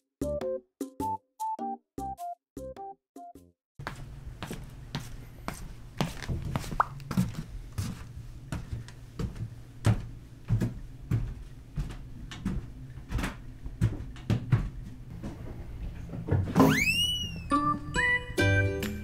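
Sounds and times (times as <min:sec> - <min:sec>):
slipper footsteps on wooden floor: 0:03.8 - 0:16.6.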